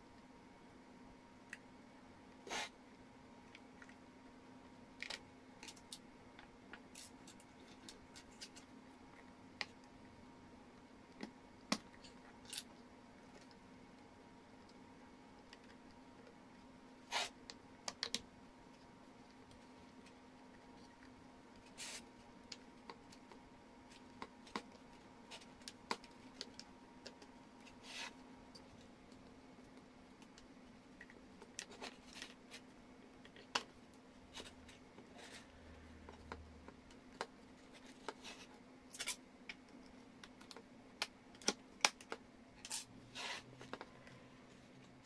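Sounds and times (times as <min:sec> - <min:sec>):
faint steady hum: 0:00.0 - 0:45.0.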